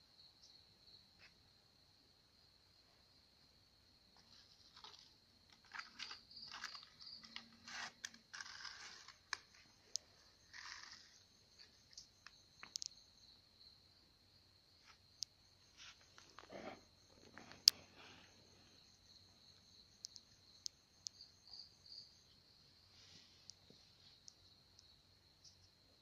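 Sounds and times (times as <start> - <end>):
insects trilling: 2.8 - 26.0
crunching and rustling ground: 4.2 - 12.9.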